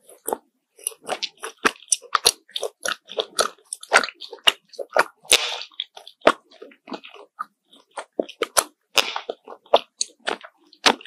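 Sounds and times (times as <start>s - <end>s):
chewing crunches: 0.0s - 11.0s
wet mouth clicks: 0.0s - 11.0s.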